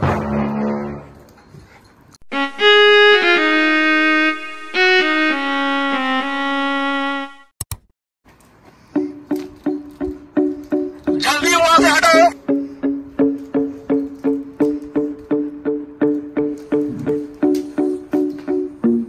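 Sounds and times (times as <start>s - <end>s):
light plucked tune: 12.4s - 19.0s.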